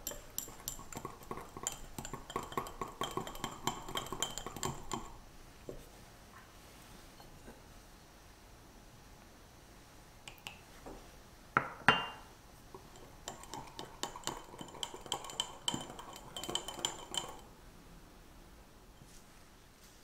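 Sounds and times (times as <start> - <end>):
whisk clinking against glass bowl: 0.0 - 5.2, 12.8 - 17.4.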